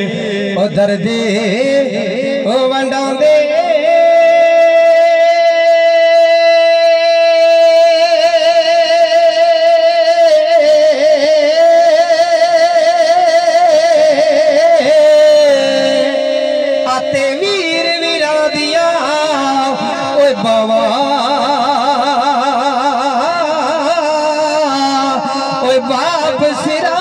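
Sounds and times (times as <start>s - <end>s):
man singing over loudspeaker: 0.0s - 27.0s.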